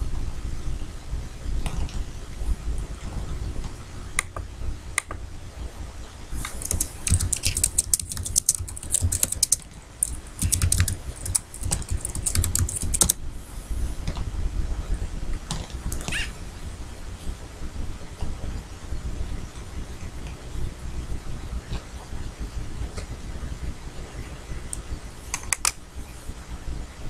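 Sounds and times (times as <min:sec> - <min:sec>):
typing on a keyboard: 0:06.4 - 0:13.2.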